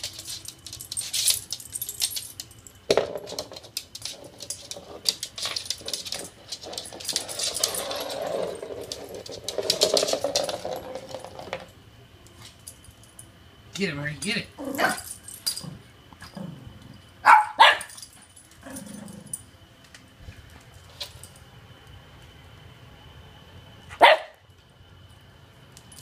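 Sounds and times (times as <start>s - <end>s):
ice ball rolling on tile: 0.0s - 12.5s.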